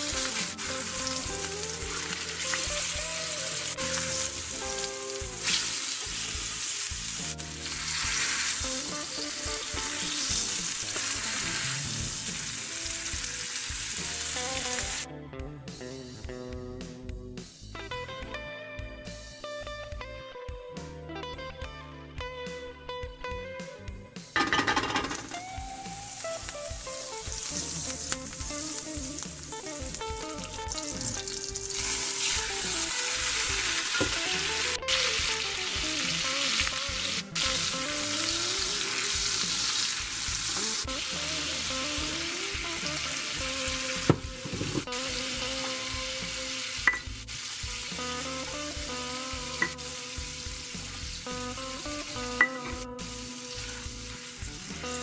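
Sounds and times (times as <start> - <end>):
butter and oil sizzling in skillet: 0.0 - 15.1, 24.4 - 55.0.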